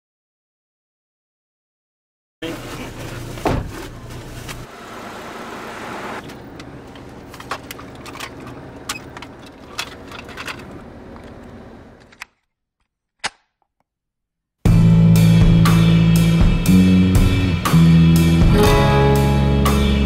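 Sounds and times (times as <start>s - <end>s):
car interior rumble: 2.4s - 12.1s
band music with drums and guitar: 14.7s - 20.0s.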